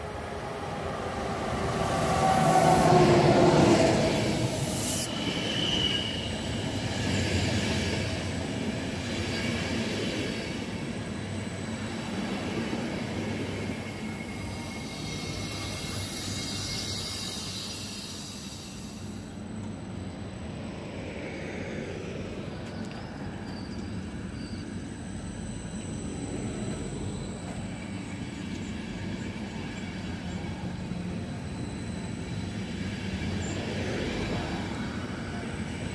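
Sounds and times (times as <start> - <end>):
electric locomotive whine: 0.0 - 35.9
passenger coaches rolling past: 0.0 - 35.9
wheel squeals: 22.6 - 28.8.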